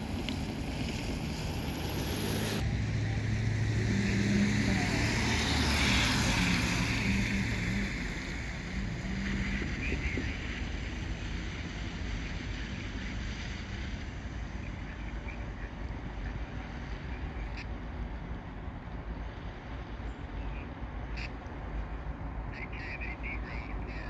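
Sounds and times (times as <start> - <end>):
low engine drone: 0.0 - 24.0
wind noise on microphone: 4.8 - 15.4.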